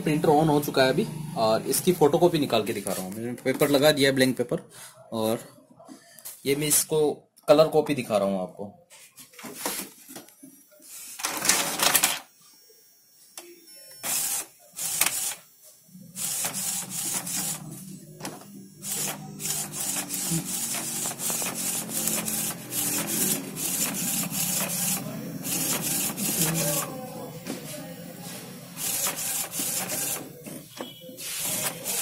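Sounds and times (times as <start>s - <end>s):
printer motor hum: 0.0s - 3.0s, 13.9s - 32.0s
printer mechanical bursts: 14.0s - 15.5s, 16.1s - 32.0s.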